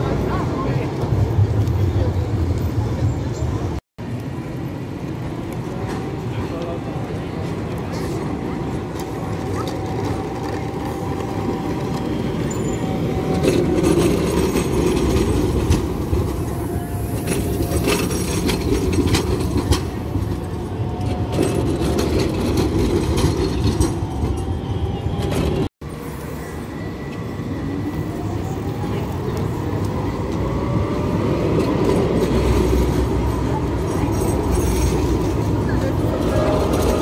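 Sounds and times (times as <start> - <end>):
tram rumbling on rails: 0.0 - 37.0
clicks of tram wheels: 17.2 - 24.5.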